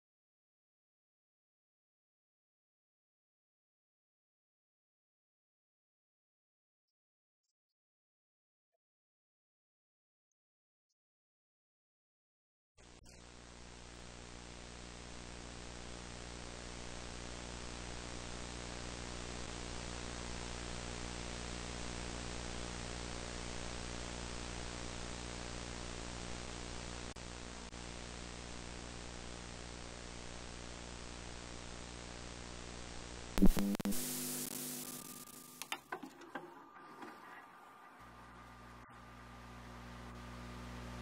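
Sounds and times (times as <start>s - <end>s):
low buzzing hum: 12.9s - 35.7s, 38.0s - 41.0s
video static hiss: 13.1s - 41.0s
click: 35.6s - 35.8s.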